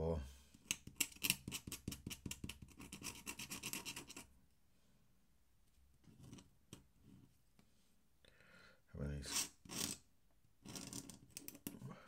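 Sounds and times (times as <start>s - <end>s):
pen nib scratching on paper: 0.6s - 4.3s.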